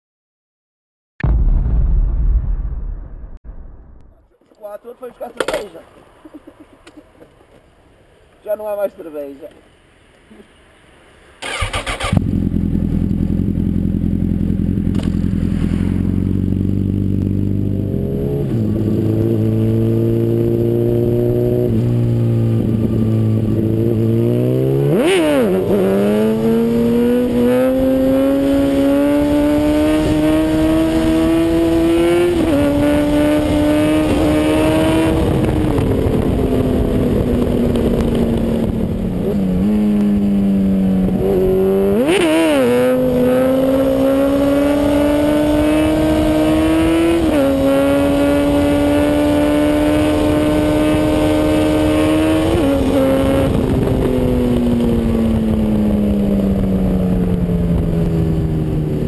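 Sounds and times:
motorcycle engine revving: 11.4 - 59.0.

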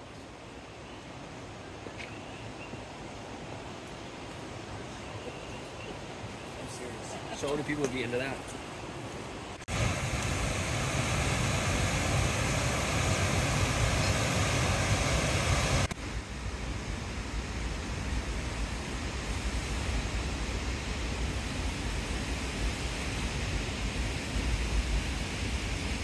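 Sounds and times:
waterfall roaring into pool: 9.5 - 26.0.

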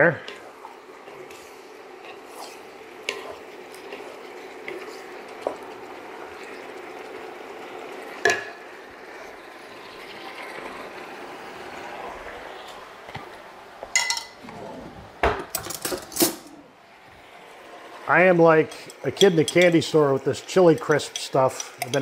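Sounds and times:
spatula stirring: 0.0 - 8.4, 18.7 - 22.0
noodles sizzling in a wok: 0.0 - 13.2
utensils and jar clinking: 13.9 - 14.4, 18.8 - 19.9, 20.6 - 22.0.

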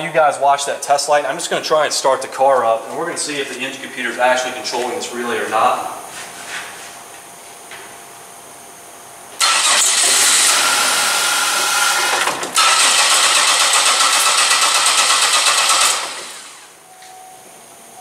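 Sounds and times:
car engine cranking on starter: 9.4 - 16.7.

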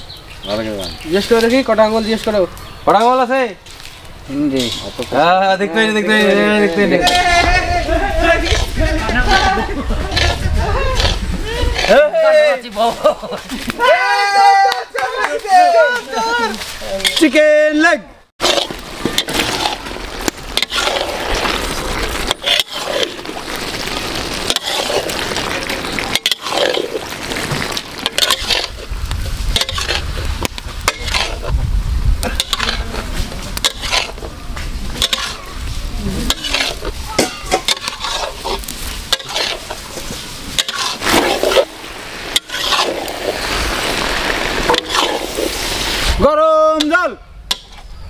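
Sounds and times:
spatula scraping metal pan: 8.2 - 12.3, 18.4 - 23.4, 24.3 - 28.9, 29.5 - 31.6, 32.2 - 33.0, 33.6 - 34.3, 34.9 - 46.1
food sizzling in a pan: 18.4 - 31.5, 32.2 - 46.2.

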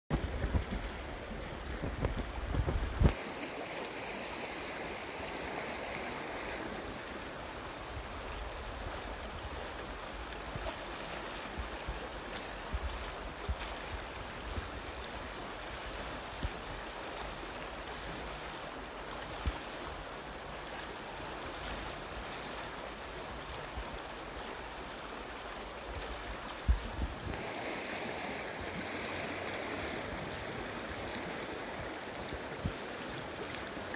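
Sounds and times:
low thumps on microphone: 0.1 - 3.2
river flowing over stones: 0.1 - 33.9.

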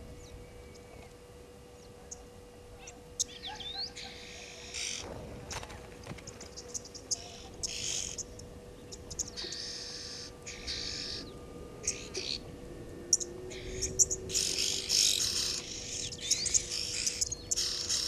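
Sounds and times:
faint steady hum: 0.0 - 18.0
small birds chirping: 0.2 - 12.5, 13.1 - 18.0.

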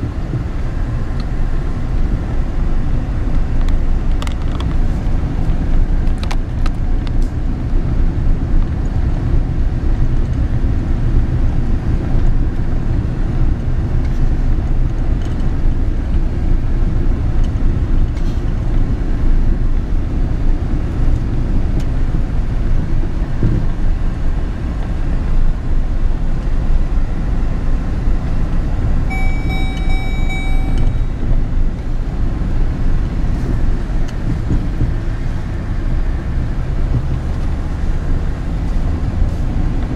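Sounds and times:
road noise: 0.0 - 39.9
truck engine rumble: 0.0 - 39.9
steady high tone: 29.1 - 31.6.

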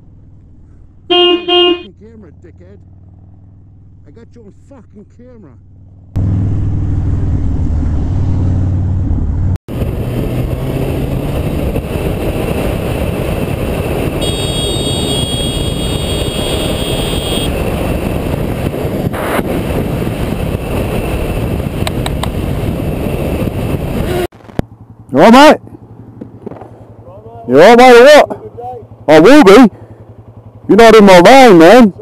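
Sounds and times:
motorcycle engine: 0.0 - 32.0
wind rushing: 7.1 - 14.2, 15.2 - 24.3.

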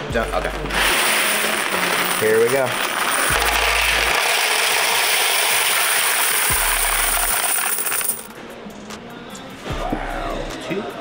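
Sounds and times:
coins clattering into plastic tray: 0.7 - 8.3.

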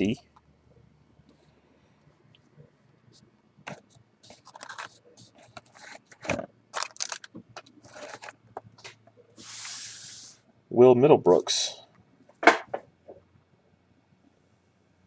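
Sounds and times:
trading cards scraping and rustling: 3.7 - 10.4.

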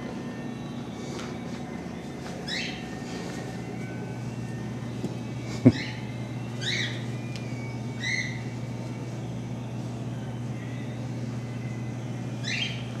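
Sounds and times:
steady low hum: 0.0 - 13.0
cougar cub chirping: 2.4 - 3.1.

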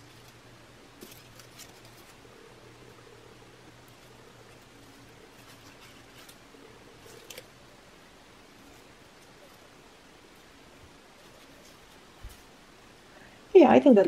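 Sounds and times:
paper rustling and ticking: 0.0 - 2.4, 3.8 - 7.7, 8.4 - 12.8
faint steady hum: 0.0 - 14.0.

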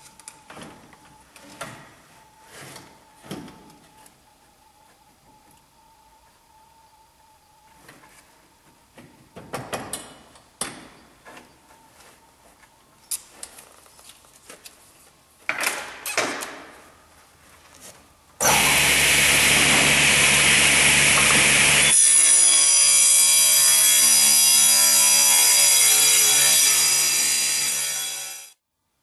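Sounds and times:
saw blade whining: 18.4 - 28.6
table saw cutting board: 18.4 - 28.6.

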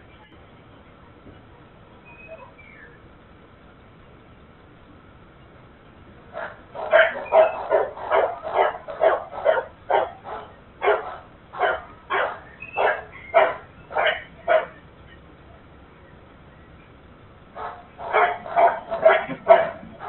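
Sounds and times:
dog barking: 6.4 - 14.8, 17.6 - 20.0.

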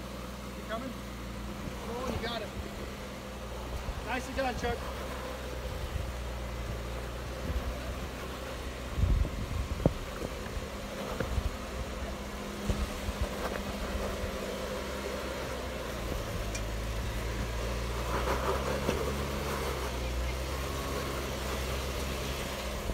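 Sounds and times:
engine running at low revs: 0.0 - 22.9.

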